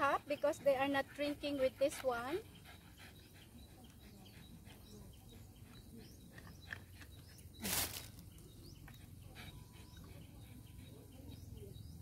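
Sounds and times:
faint bird chirps: 2.4s - 12.0s.

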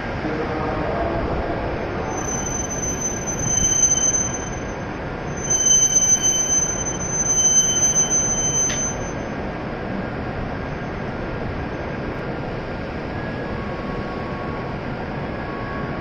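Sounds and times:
train low rumble: 0.0s - 16.0s
train brakes squealing: 1.9s - 9.5s.

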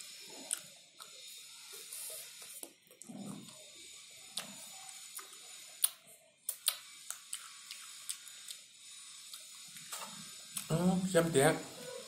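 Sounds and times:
wet mouth clicks and lip smacks: 0.5s - 1.2s, 5.2s - 8.6s.

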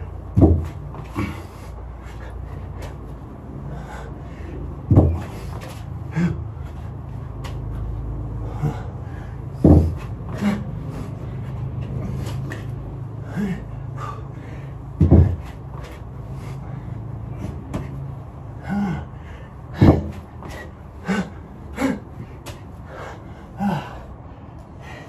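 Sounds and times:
person breathing hard: 0.0s - 25.0s
heavy thuds: 0.2s - 1.6s, 4.7s - 6.4s, 8.4s - 12.7s, 14.9s - 16.6s, 19.7s - 21.3s.

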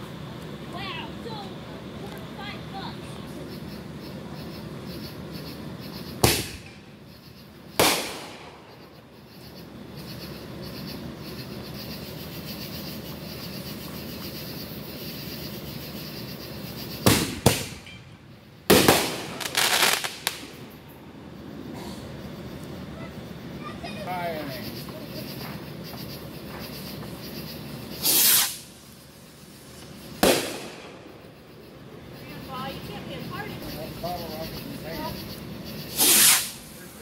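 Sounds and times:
rapid crackling of fireworks: 0.0s - 37.0s
fireworks bangs: 6.1s - 6.9s, 7.8s - 8.8s, 16.9s - 20.9s, 28.0s - 28.9s, 29.6s - 31.3s, 35.9s - 37.0s.

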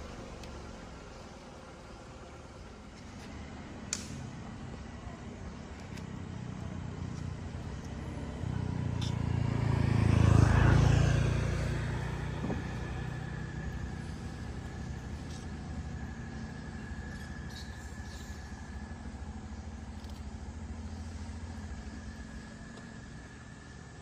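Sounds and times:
vehicle passing by: 6.2s - 24.0s.

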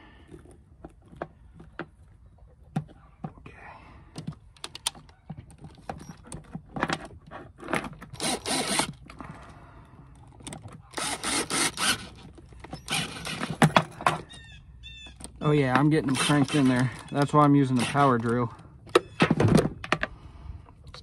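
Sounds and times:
clicks and rattles of parts: 4.1s - 20.2s
cordless drill driving screws: 8.0s - 9.2s, 10.9s - 13.8s, 16.0s - 18.6s.

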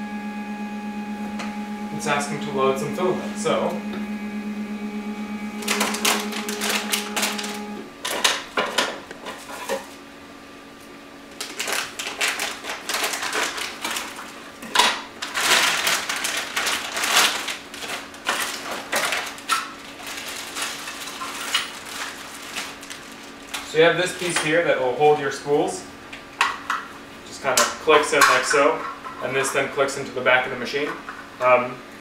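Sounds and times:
steady low hum: 0.0s - 15.3s
plastic packaging crinkling: 11.3s - 23.8s.

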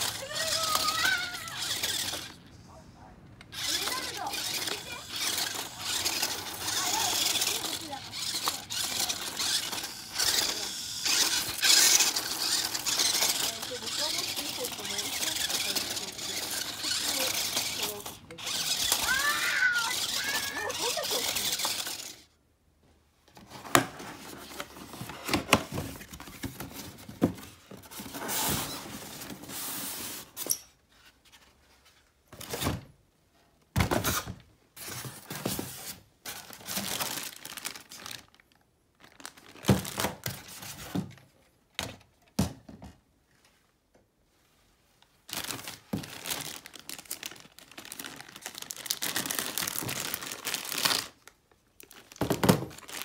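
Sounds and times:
cardboard and styrofoam scraping: 3.5s - 22.2s, 23.4s - 31.4s, 34.0s - 37.8s
plastic bags crinkling: 3.6s - 22.2s, 36.3s - 40.3s, 45.2s - 53.0s.

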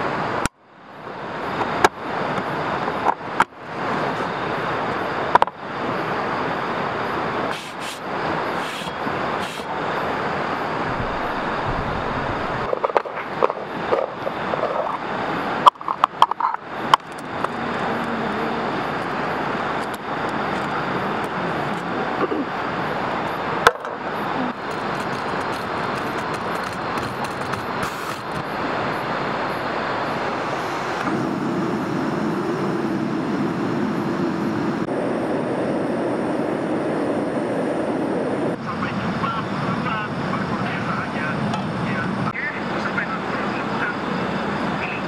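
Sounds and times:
river water flowing: 0.0s - 15.9s
gas burner roaring: 0.0s - 39.3s.

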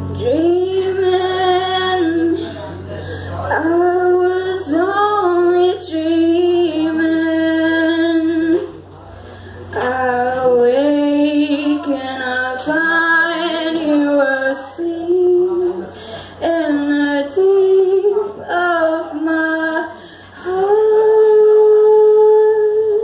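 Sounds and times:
electric guitar: 0.0s - 7.2s
woman singing: 0.1s - 2.6s, 3.5s - 8.8s, 9.7s - 23.0s.

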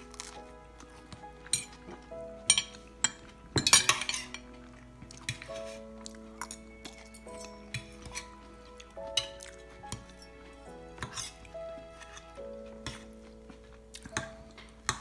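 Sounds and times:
soft background music: 0.0s - 15.0s
cutlery clinking and scraping on plate: 1.4s - 8.4s, 9.1s - 10.3s, 11.0s - 13.2s.

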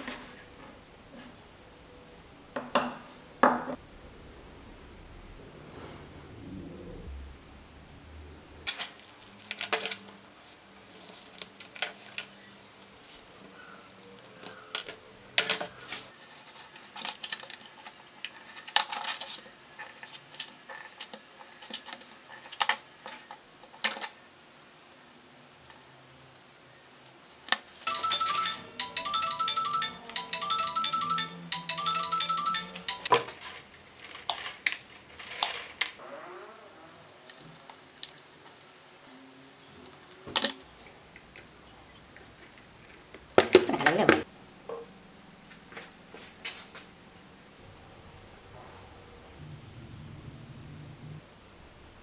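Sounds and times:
bright chiming tune: 27.9s - 33.3s.

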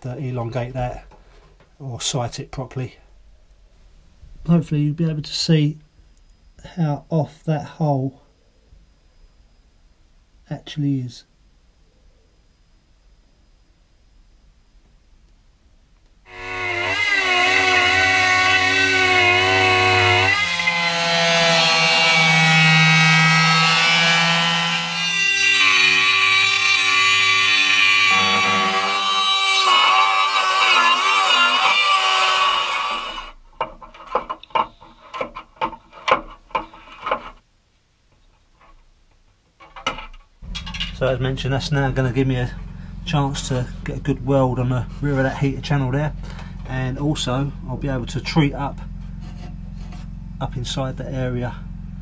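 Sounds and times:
angle grinder cutting steel: 16.3s - 33.4s, 40.4s - 50.2s
die grinder whining on steel: 16.3s - 33.4s, 40.4s - 52.0s
sheet steel clicking and knocking: 38.6s - 41.0s.

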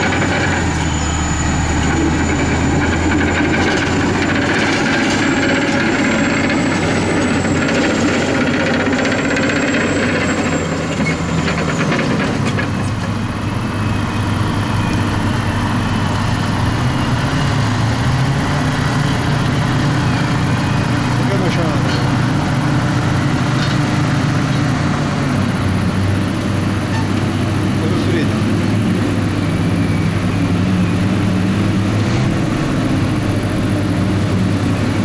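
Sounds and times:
bulldozer diesel engine running: 0.0s - 35.0s.

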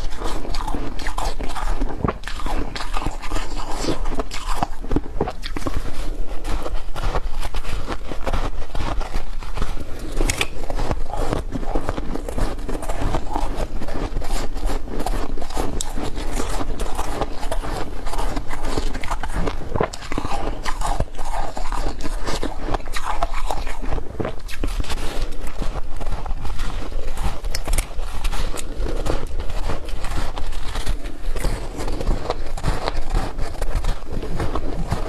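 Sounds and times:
chewing crushed ice: 0.0s - 35.0s.

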